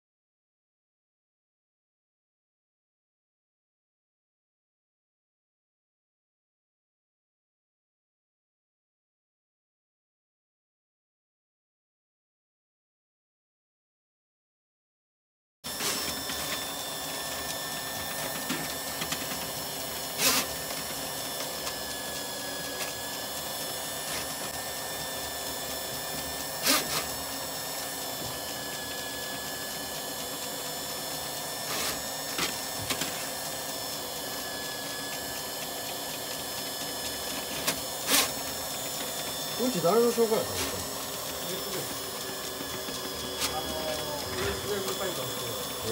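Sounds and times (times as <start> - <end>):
drain cleaning machine running: 15.7 - 45.9.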